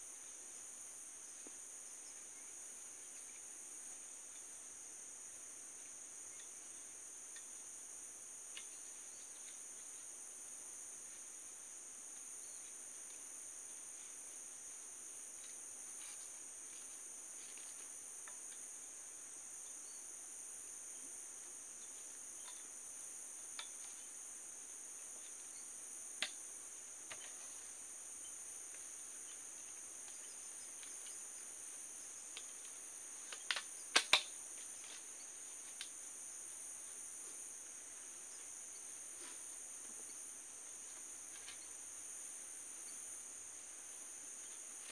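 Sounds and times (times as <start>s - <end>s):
insects droning: 0.0s - 44.9s.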